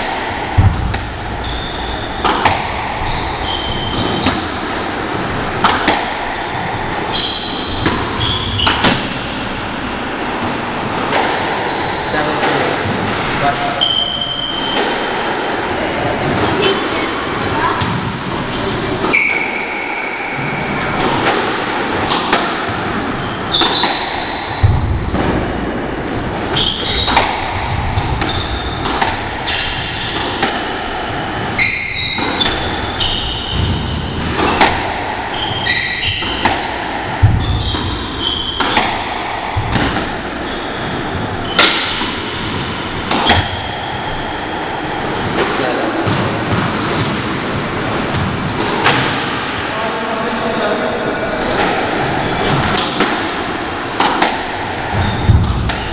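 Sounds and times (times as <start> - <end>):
shoe squeaks on wooden floor: 1.4 - 2.3, 3.0 - 4.3, 7.1 - 8.9, 11.7 - 12.3, 13.8 - 14.8, 18.6 - 21.0, 23.2 - 24.2, 26.6 - 27.2, 31.6 - 34.1, 35.3 - 36.4, 37.4 - 38.7, 40.4 - 41.7
squash ball cracking off racket: 2.1 - 6.4, 20.9 - 32.8, 33.5 - 40.5, 41.4 - 43.6, 51.4 - 55.9.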